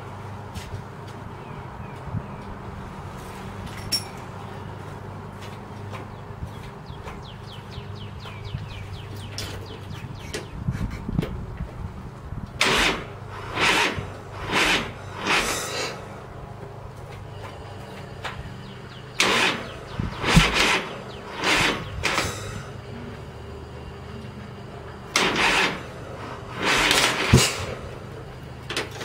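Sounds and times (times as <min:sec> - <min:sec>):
starter slowly cranking engine: 0:12.4 - 0:29.0.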